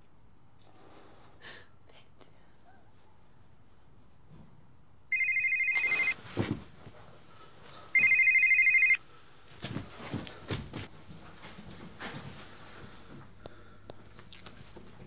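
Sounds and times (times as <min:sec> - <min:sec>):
telephone ringing: 0:05.1 - 0:06.2, 0:08.0 - 0:09.0.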